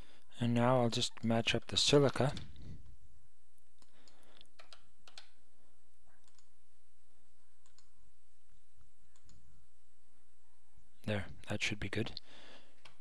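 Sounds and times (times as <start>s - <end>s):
computer mouse clicking: 3.8s - 5.4s, 6.2s - 6.5s, 7.6s - 8.0s, 9.1s - 9.4s.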